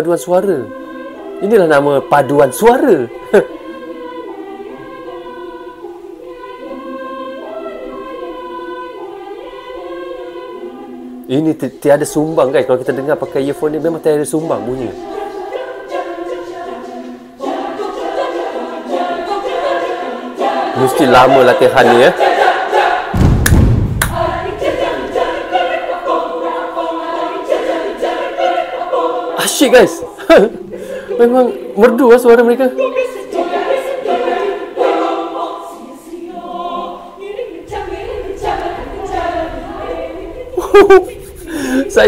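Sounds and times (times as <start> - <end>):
children's choir singing a cappella: 0.0 - 23.3, 24.0 - 42.0
sharp smacks: 23.1 - 24.2
low thud: 23.1 - 24.6.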